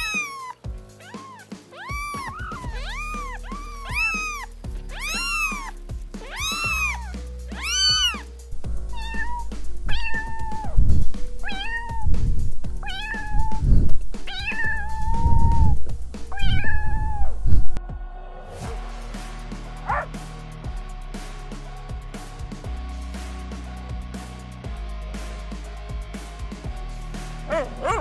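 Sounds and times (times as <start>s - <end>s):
cat meowing: 0.0s - 8.3s, 8.9s - 10.8s, 11.4s - 12.2s, 12.8s - 13.7s, 14.3s - 17.6s, 19.9s - 20.1s
background music: 0.0s - 28.0s.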